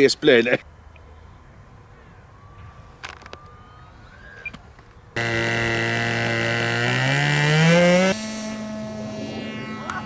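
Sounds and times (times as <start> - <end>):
model airplane motor and propeller: 5.2 - 10.0.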